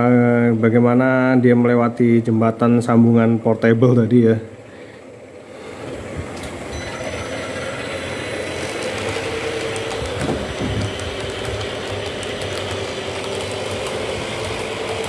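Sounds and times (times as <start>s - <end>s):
model train running on track: 6.7s - 15.0s.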